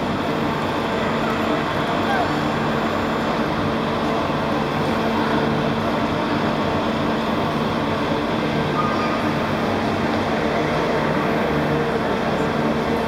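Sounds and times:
machinery droning: 0.0 - 13.0.

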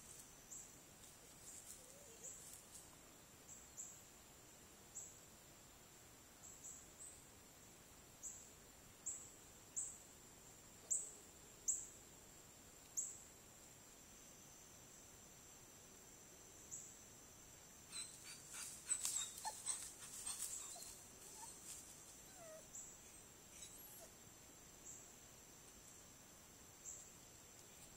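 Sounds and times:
night insects buzzing: 0.0 - 27.9
dog whining: 17.9 - 21.6, 22.3 - 22.7, 23.5 - 24.1
scratching and rustling: 18.4 - 22.3.

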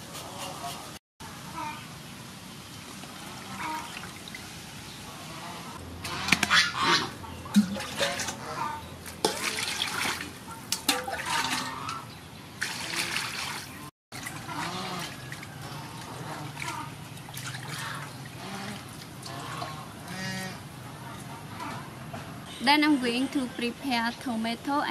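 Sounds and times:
water splashing into metal basin: 7.5 - 12.0, 12.6 - 19.9.

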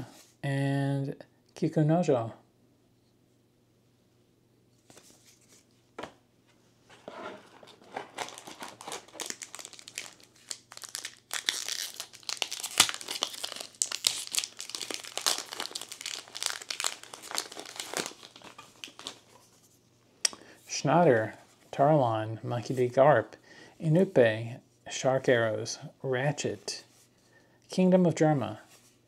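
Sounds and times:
foil pack crinkling and tearing: 7.6 - 19.3.

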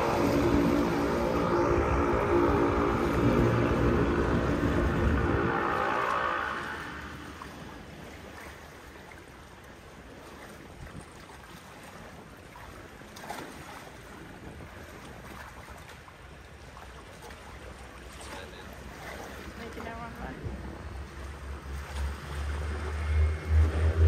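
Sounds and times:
motor engine: 0.0 - 7.5
water: 0.0 - 24.0
wind: 0.0 - 24.0.

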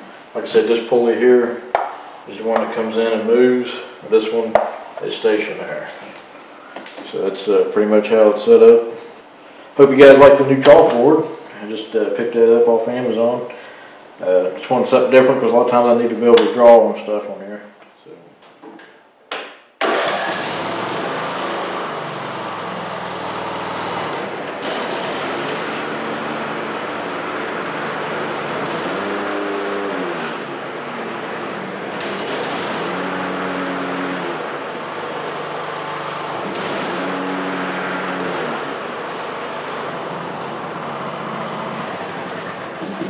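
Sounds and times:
mower blades spinning: 19.8 - 43.0
riding mower engine running: 19.8 - 43.0.

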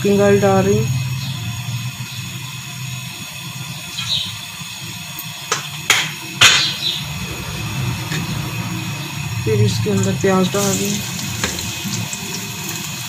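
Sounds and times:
steady low hum: 6.4 - 12.7.

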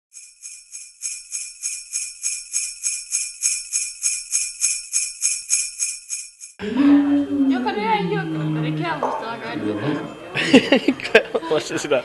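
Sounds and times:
sleigh bells jingling: 0.1 - 6.6.

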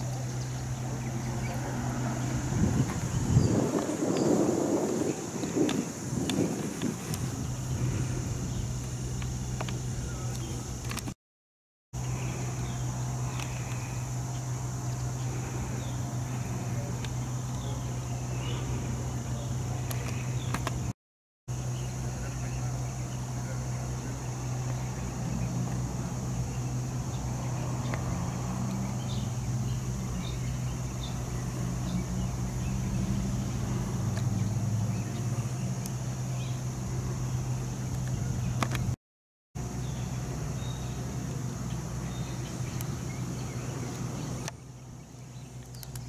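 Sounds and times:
locomotive diesel idling: 0.0 - 3.4, 5.3 - 11.0, 12.0 - 20.9, 21.5 - 39.0
faint chirping: 0.0 - 10.9, 12.0 - 38.6.

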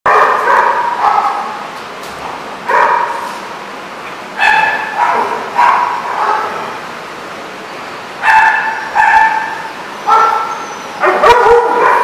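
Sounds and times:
dog yipping: 4.4 - 6.5, 8.2 - 12.0.

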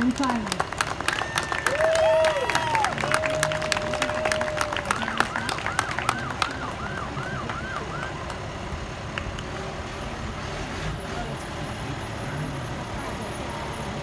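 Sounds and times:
people clapping: 0.0 - 8.5, 9.1 - 9.5.

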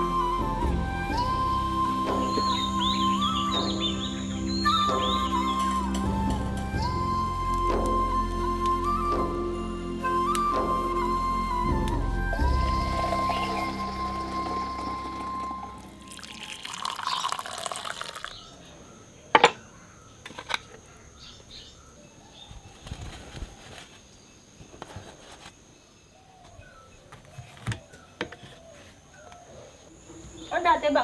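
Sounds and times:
tea pouring into cup: 12.6 - 18.5.

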